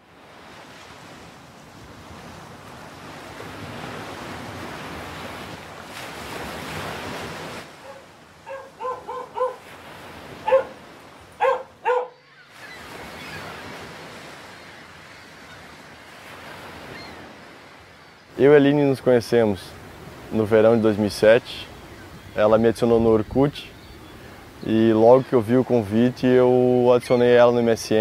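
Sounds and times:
surf washing on beach: 0:00.0 - 0:28.0
dog barking: 0:07.8 - 0:09.7, 0:10.4 - 0:10.8, 0:11.4 - 0:12.2.

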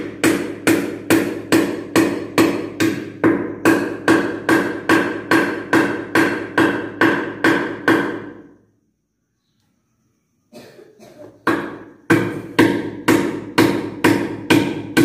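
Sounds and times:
hammer driving nails into wood: 0:00.0 - 0:08.3, 0:11.4 - 0:15.0.

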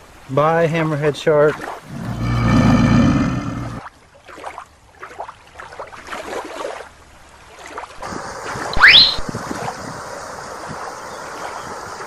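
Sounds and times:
water sloshing: 0:03.7 - 0:09.2
wind on microphone: 0:08.0 - 0:12.0
quick rising whistle: 0:08.7 - 0:09.2.

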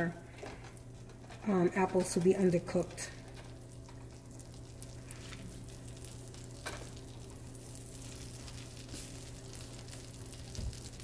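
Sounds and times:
low steady hum: 0:00.0 - 0:11.0
butter sizzling in a frying pan: 0:03.3 - 0:11.0.

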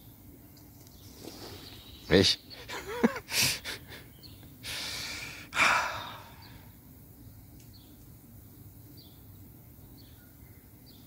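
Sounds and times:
breathy sigh: 0:04.7 - 0:06.6.

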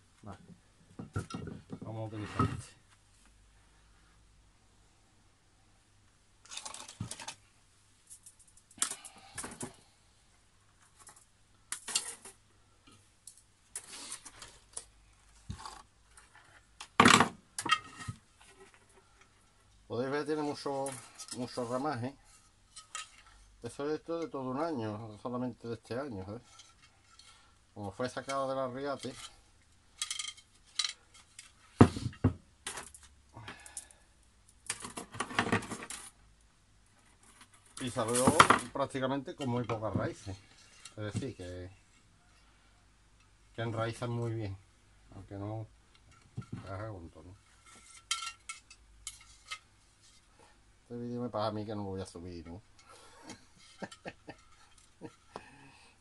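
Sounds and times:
tools clicking and clattering: 0:11.0 - 0:12.4, 0:30.0 - 0:31.6, 0:47.6 - 0:49.7
objects rattling on wooden workbench: 0:17.0 - 0:18.2, 0:34.7 - 0:36.1, 0:37.9 - 0:38.8.

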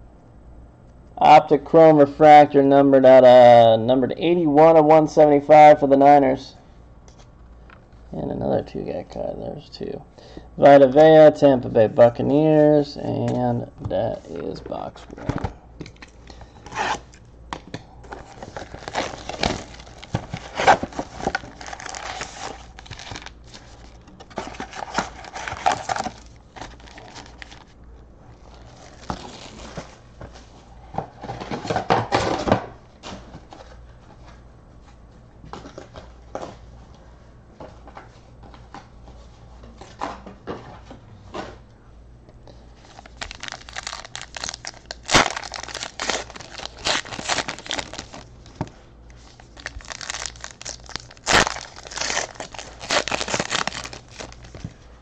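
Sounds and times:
plastic wrappers crinkling: 0:18.0 - 0:27.7, 0:28.3 - 0:29.9, 0:42.8 - 0:54.8
cardboard tearing and scraping: 0:18.2 - 0:23.3, 0:43.1 - 0:48.2, 0:49.6 - 0:54.5
pack wrapper ripping open: 0:18.3 - 0:27.6, 0:42.9 - 0:48.3, 0:49.4 - 0:54.6.

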